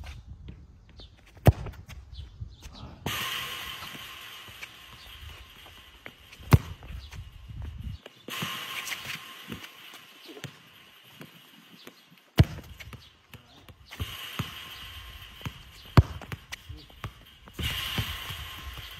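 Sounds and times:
football kicks: 1.2 - 2.0, 6.3 - 7.7, 12.4 - 18.9.

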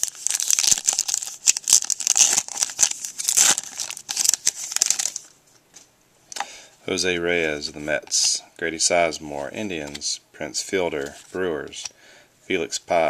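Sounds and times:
foil wrapper tearing and crinkling: 0.0 - 5.3.

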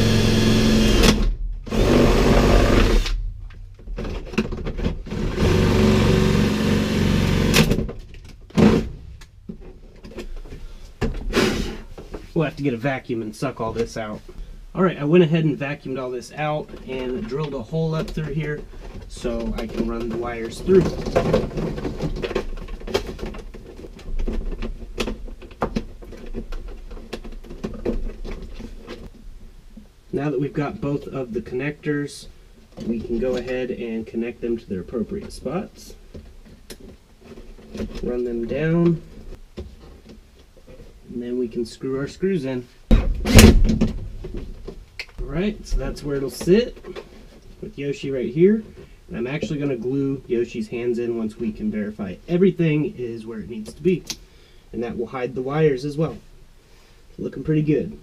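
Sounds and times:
cordless drill running: 0.0 - 3.1, 5.3 - 7.6
rustling of wires: 15.6 - 30.1.

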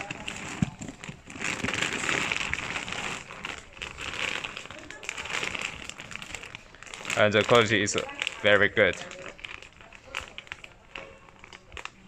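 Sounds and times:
plastic bag crinkling: 0.0 - 12.0.

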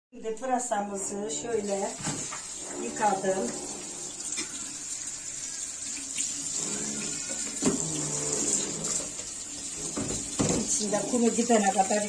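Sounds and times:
tap water splashing on vegetables: 7.1 - 12.0.

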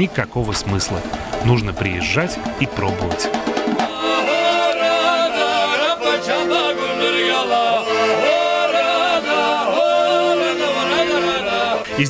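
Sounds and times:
accordion playing chords: 0.0 - 12.0
man singing: 3.8 - 12.0.

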